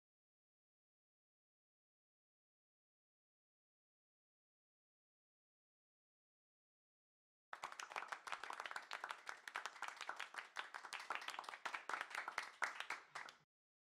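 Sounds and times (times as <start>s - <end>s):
crowd applause: 7.6s - 13.4s.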